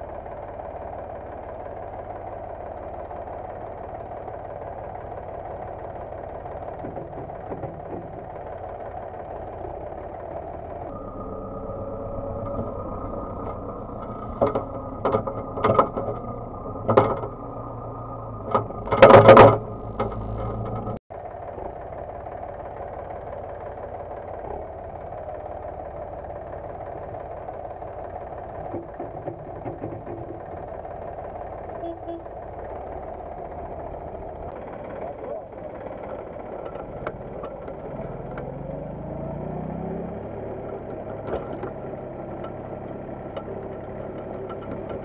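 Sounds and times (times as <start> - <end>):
manure spreader whine: 0.0 - 45.0
tractor engines running: 0.0 - 45.0
spreader knocks and rattles: 14.3 - 17.3.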